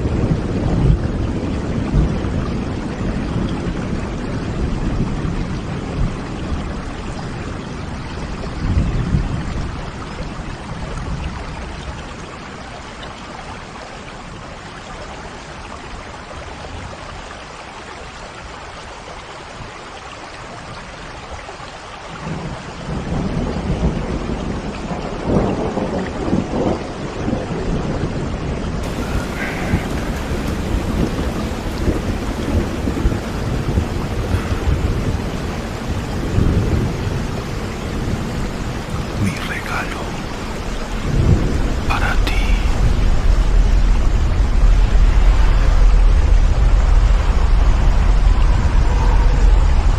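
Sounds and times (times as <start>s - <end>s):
thunder rumbling: 0.0s - 11.3s, 22.2s - 49.9s
heavy rain: 0.0s - 49.9s.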